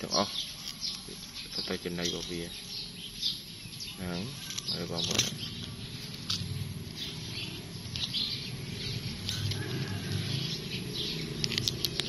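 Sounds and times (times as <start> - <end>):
dry grass rustling: 4.3 - 12.0.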